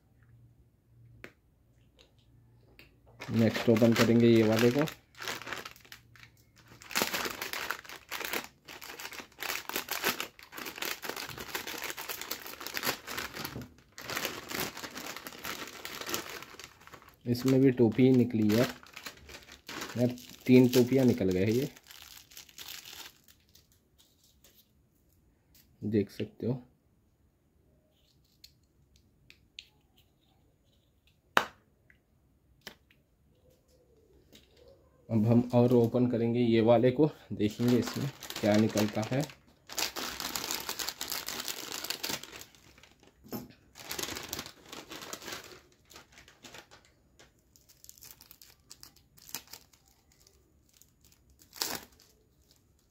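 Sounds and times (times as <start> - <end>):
plastic snack packet crinkling: 3.2 - 24.6, 37.4 - 52.9.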